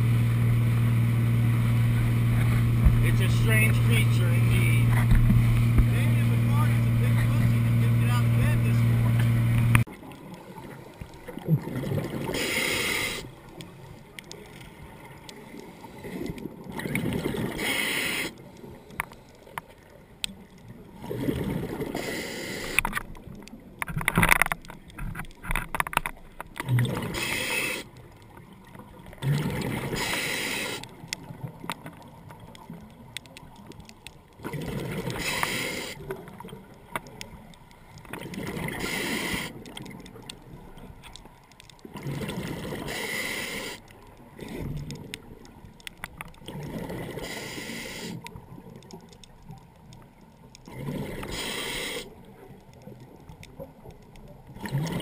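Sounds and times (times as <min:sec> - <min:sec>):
regulator inhale hiss: 0:12.3 - 0:13.3, 0:17.5 - 0:19.5, 0:21.9 - 0:22.9, 0:27.1 - 0:27.9, 0:29.9 - 0:30.9, 0:35.2 - 0:36.0, 0:38.8 - 0:39.6, 0:42.8 - 0:43.9, 0:47.2 - 0:48.2, 0:51.0 - 0:52.2.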